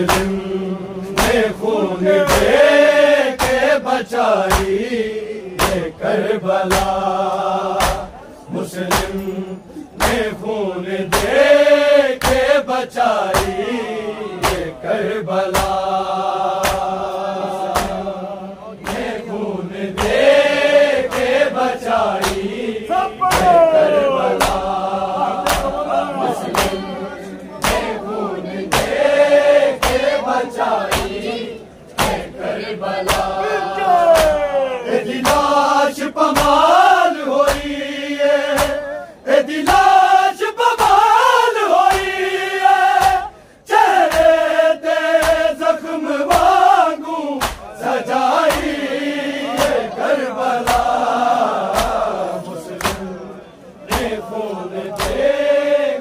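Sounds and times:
men slapping their chests: 0:00.0 - 0:01.6, 0:02.2 - 0:02.7, 0:03.3 - 0:04.9, 0:05.6 - 0:06.0, 0:06.6 - 0:07.1, 0:07.7 - 0:08.1, 0:08.8 - 0:09.2, 0:10.0 - 0:10.4, 0:11.1 - 0:13.7, 0:14.4 - 0:14.8, 0:15.4 - 0:18.1, 0:18.8 - 0:19.2, 0:19.9 - 0:26.9, 0:27.6 - 0:28.0, 0:28.6 - 0:31.2, 0:32.0 - 0:32.4, 0:33.0 - 0:37.8, 0:38.5 - 0:39.0, 0:39.6 - 0:40.1, 0:40.8 - 0:41.2, 0:41.8 - 0:42.2, 0:42.8 - 0:45.6, 0:46.2 - 0:48.8, 0:49.5 - 0:50.0, 0:50.6 - 0:53.2, 0:53.9 - 0:55.4
men chanting a lament: 0:00.0 - 0:56.0.

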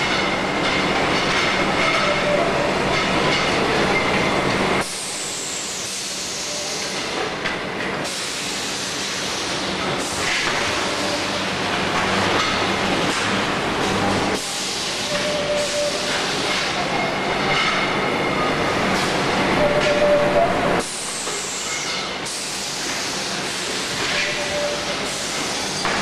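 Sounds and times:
machine clattering and hissing: 0:00.0 - 0:26.0
high metallic squeals: 0:01.8 - 0:02.7, 0:15.0 - 0:16.3, 0:19.5 - 0:20.8.

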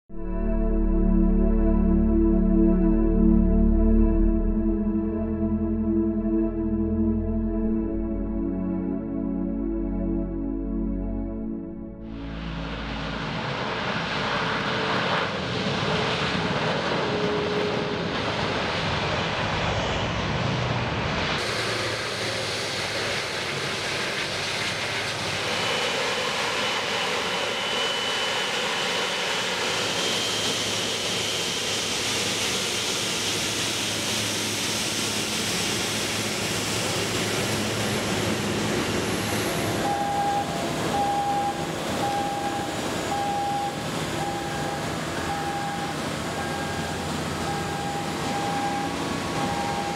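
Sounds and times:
high whine: 0:00.1 - 0:22.9, 0:24.7 - 0:49.9
jet engines roaring: 0:12.0 - 0:49.9
electronic warning beep: 0:39.8 - 0:49.9.

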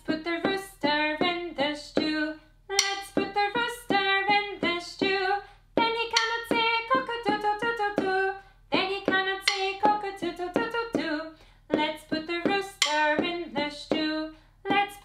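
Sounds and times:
woman singing: 0:00.0 - 0:15.0
wooden drumstick taps: 0:02.8 - 0:04.0, 0:05.8 - 0:08.2, 0:09.0 - 0:11.2, 0:11.8 - 0:14.1.

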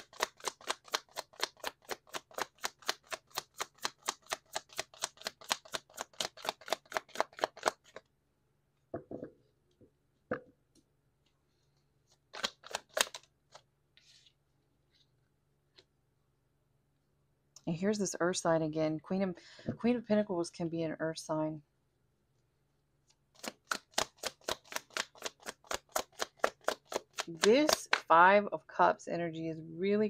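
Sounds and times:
cards being shuffled: 0:00.0 - 0:08.1, 0:12.1 - 0:14.4, 0:23.3 - 0:28.1
card taps and knocks: 0:08.9 - 0:09.4.

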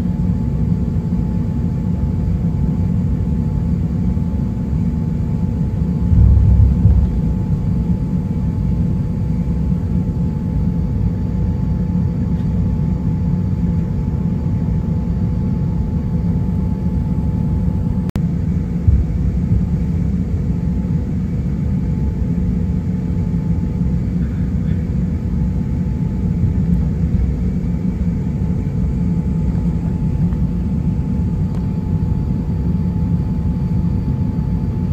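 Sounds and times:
jet engines rumbling in cabin: 0:00.0 - 0:34.9
low bumps: 0:06.1 - 0:07.4.

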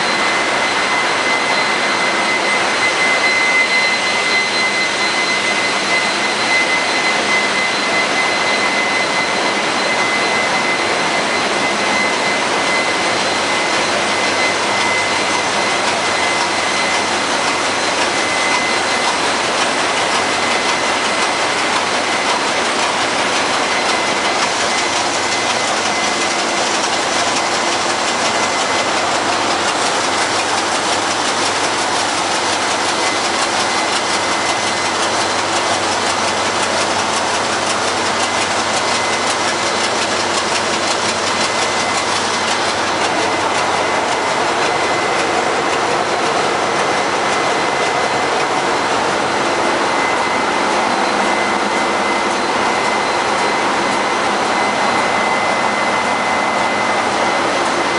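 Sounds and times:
engine room machinery noise: 0:00.0 - 0:57.9
high whine: 0:00.0 - 0:57.9.

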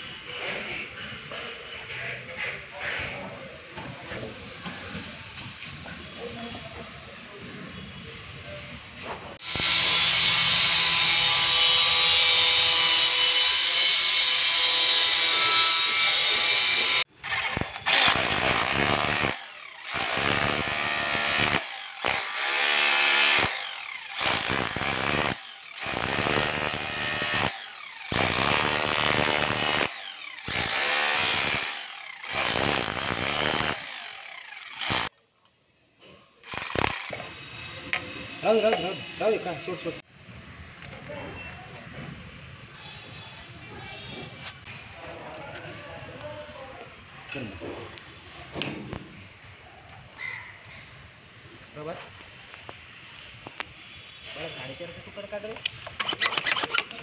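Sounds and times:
rotary hammer chiselling concrete: 0:16.1 - 0:35.1, 0:36.4 - 0:37.3.

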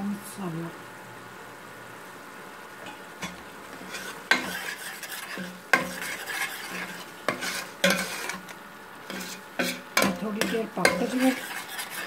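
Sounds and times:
spices sizzling in oil: 0:00.2 - 0:12.0
spoon knocking against pot: 0:09.6 - 0:11.2.

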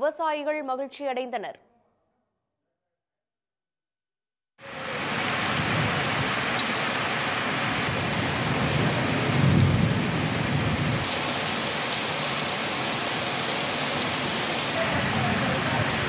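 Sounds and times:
heavy rain pouring: 0:04.6 - 0:16.0
thunder rumbling: 0:04.8 - 0:16.0.

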